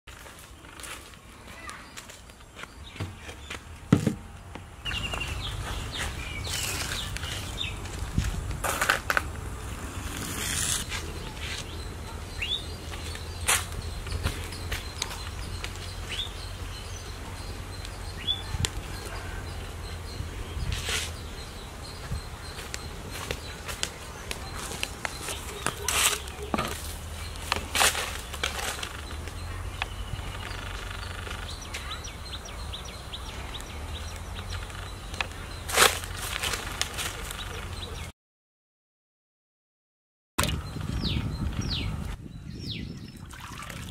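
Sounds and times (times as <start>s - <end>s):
footsteps scuffing: 0.1s - 9.4s, 10.5s - 11.8s, 12.8s - 16.0s, 22.0s - 29.4s, 34.5s - 37.4s
small birds chirping: 0.2s - 38.1s, 40.4s - 43.9s
sharp crackles: 22.6s - 31.9s.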